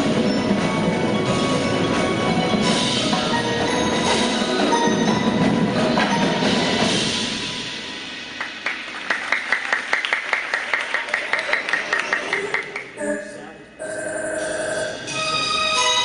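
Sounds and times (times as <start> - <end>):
mallet keyboards: 0.0 - 7.1, 11.6 - 16.0.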